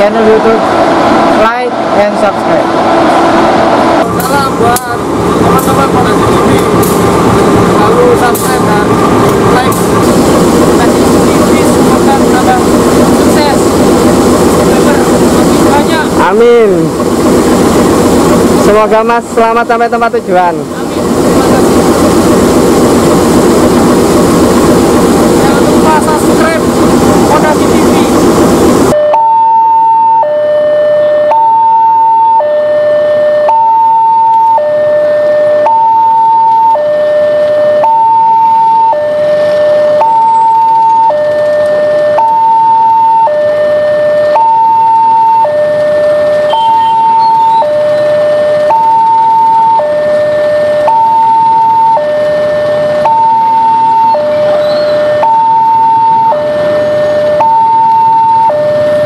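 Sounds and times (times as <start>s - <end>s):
diesel locomotive running: 0.0s - 59.0s
two-tone level crossing alarm: 28.9s - 59.0s.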